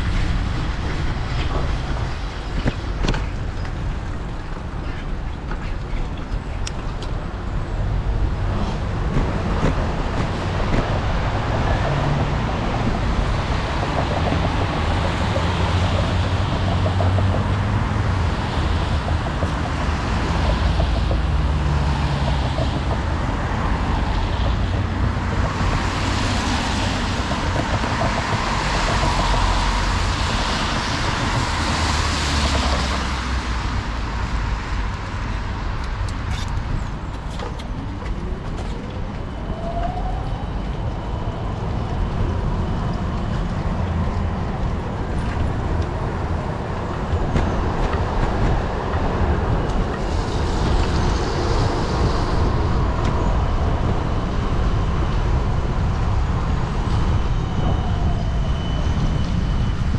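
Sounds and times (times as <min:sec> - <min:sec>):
low traffic rumble: 0:00.0 - 0:59.9
tyres hissing on wet road: 0:49.9 - 0:53.0.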